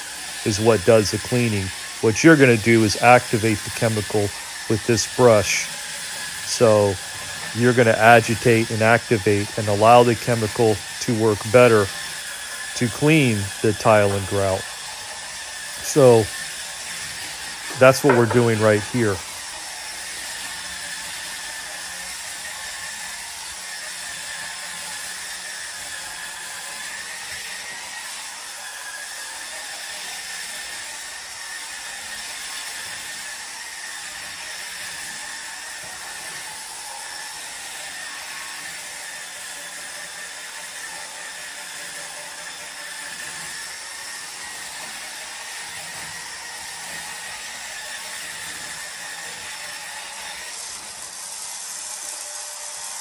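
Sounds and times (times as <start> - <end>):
brush scrubbing hiss: 0.0 - 12.2, 12.8 - 14.6, 15.7 - 19.3
electric scrubber motor whine: 0.0 - 53.0.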